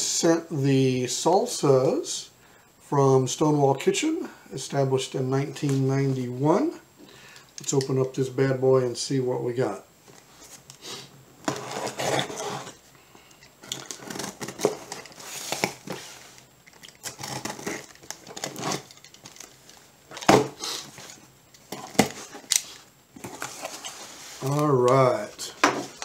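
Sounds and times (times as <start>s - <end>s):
tape tearing: 11.4s - 12.8s, 13.6s - 25.0s
packing material crinkling: 13.6s - 25.3s.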